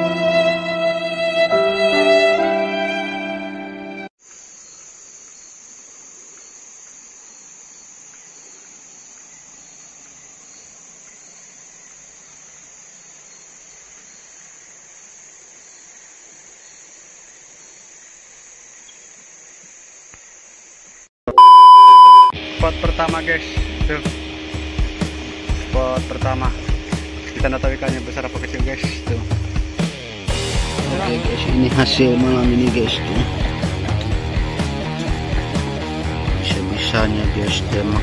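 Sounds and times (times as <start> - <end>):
high-pitched insect chorus: 4.2 - 21.1
electronic beep: 21.3 - 22.4.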